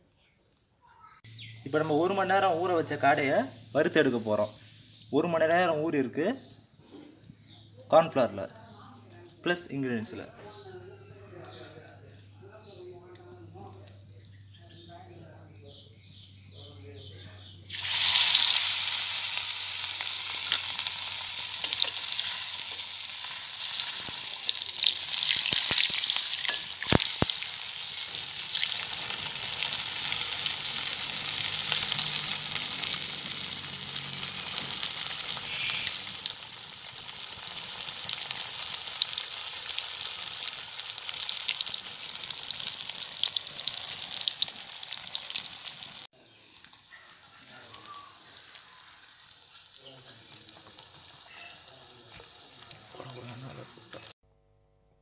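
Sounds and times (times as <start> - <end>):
oil popping: 17.7 - 46.9, 47.7 - 54.1
oil sizzling while deep-frying: 17.7 - 54.2.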